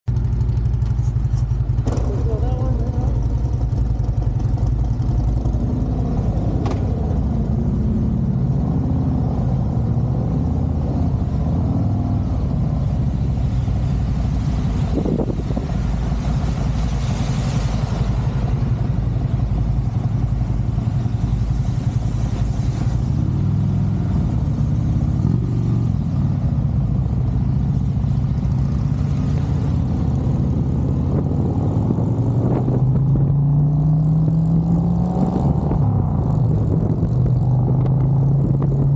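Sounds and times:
motorcycle engine running: 0.1 - 8.5
rushing hiss of wet road: 13.3 - 19.8.

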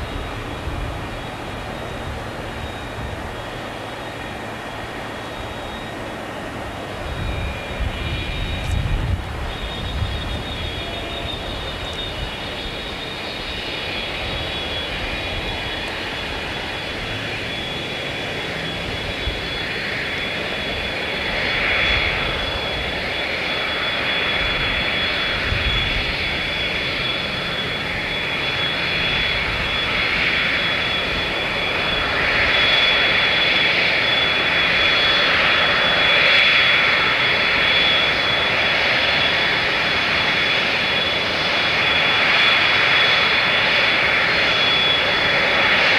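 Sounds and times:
jet airliner taxiing: 0.0 - 45.9.

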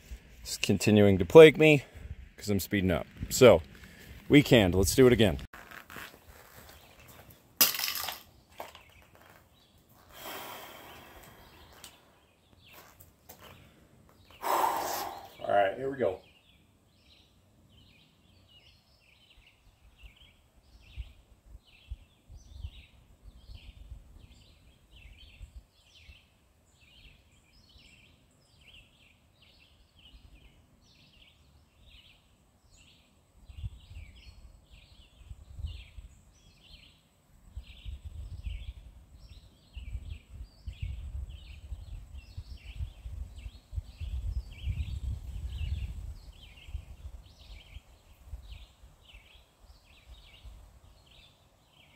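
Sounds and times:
gusts of low rumble: 1.8 - 5.5.

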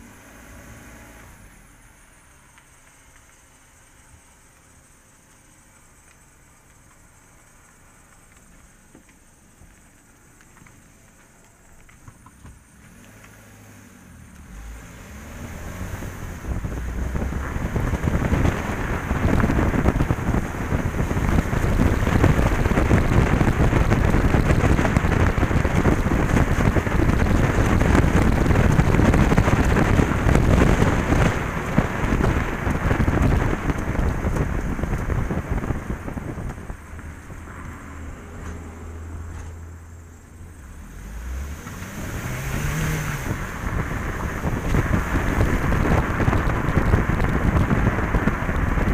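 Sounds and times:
car engine low hum: 0.0 - 48.9
tyre roar on wet road: 0.0 - 48.9
wind buffeting microphone: 14.9 - 38.8, 41.3 - 48.9.

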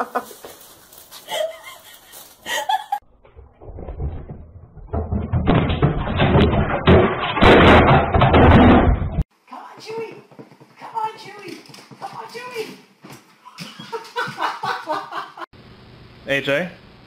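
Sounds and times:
rapid clatter of knocks and bangs: 3.6 - 9.2.

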